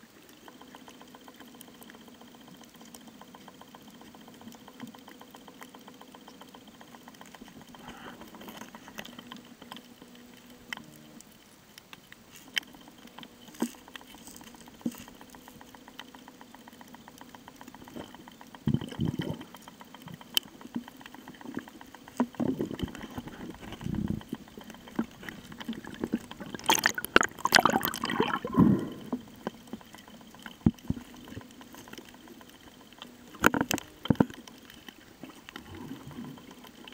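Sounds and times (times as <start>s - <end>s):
bubbling and splashing: 22.6s - 29.2s
water gurgling underwater: 22.6s - 29.2s.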